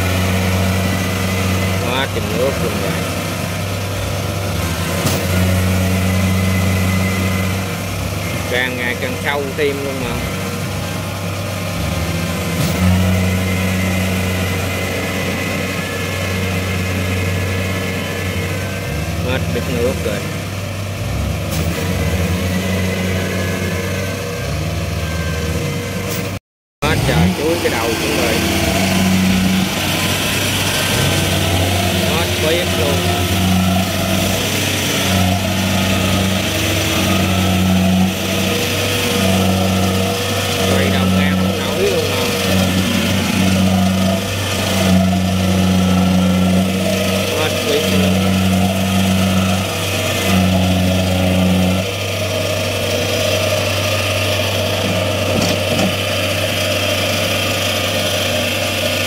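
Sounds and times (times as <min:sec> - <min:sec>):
harvester diesel engine running: 0:00.0 - 0:59.0
churning through mud: 0:26.8 - 0:59.0.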